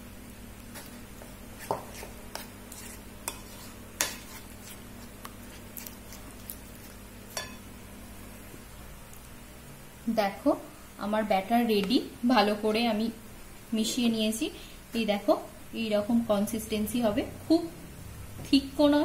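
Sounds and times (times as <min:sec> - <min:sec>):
fork stirring batter in bowl: 0:00.6 - 0:07.6
fork clinking against bowl: 0:07.3 - 0:07.6.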